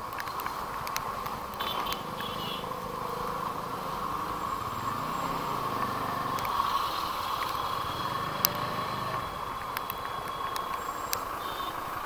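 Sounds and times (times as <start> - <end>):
vehicle engine running: 1.2 - 9.4.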